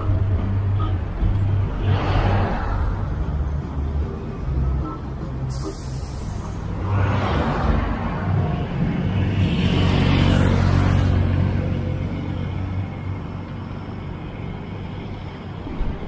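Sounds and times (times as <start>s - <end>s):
low traffic rumble: 0.0s - 16.0s
vehicle passing: 6.6s - 12.8s.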